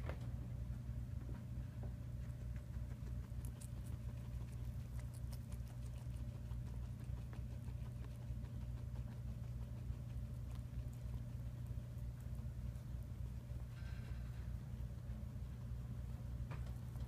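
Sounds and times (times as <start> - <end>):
guinea pigs chewing vegetables: 0.0 - 17.0
steady low hum: 0.0 - 17.0.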